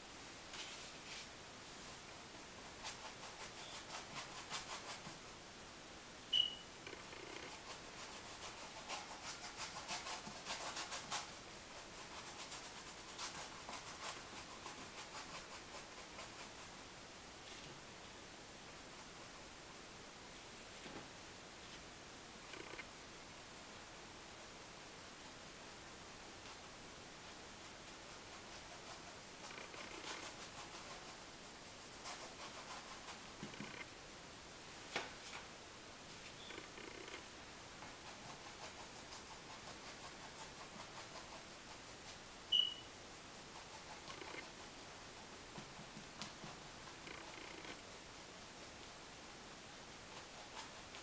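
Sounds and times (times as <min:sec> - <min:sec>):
steady hiss: 0:00.0 - 0:51.0
paintbrush scrubbing canvas: 0:00.6 - 0:05.4, 0:07.0 - 0:16.8, 0:25.0 - 0:33.9, 0:37.8 - 0:42.3, 0:43.1 - 0:49.0, 0:50.0 - 0:51.0.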